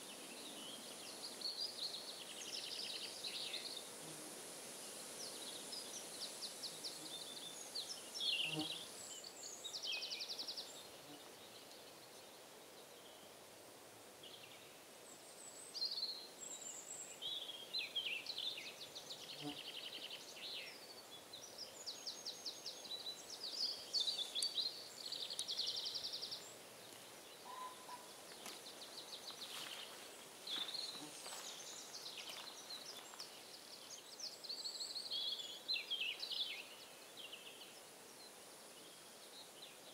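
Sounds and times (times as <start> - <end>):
faint steady hiss: 0.0 - 39.9
birds singing and calling: 5.2 - 11.8, 15.6 - 37.8.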